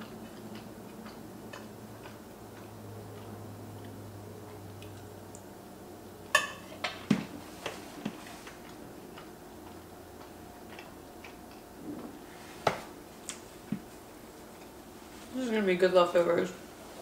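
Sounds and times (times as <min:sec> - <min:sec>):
chewing soft pasta: 0:00.0 - 0:05.8, 0:07.6 - 0:12.4.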